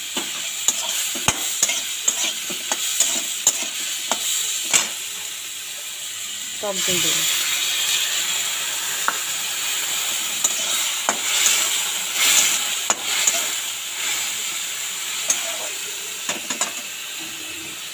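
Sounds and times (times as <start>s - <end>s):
curry sizzling in a pan: 0.0s - 17.9s
metal spatula scraping pan: 0.2s - 4.3s, 10.4s - 13.6s, 15.2s - 15.8s.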